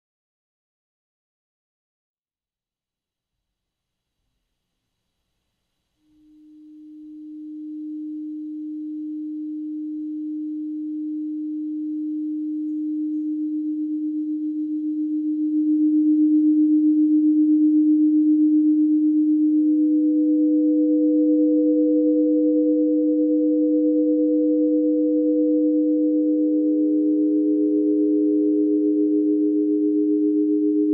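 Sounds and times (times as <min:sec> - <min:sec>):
steady electronic tone: 0:06.1 - 0:30.9
higher electronic tone: 0:06.2 - 0:30.9.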